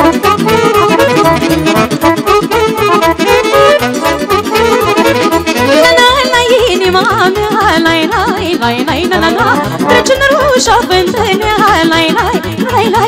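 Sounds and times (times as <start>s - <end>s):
folk dance band playing: 0.0s - 13.0s.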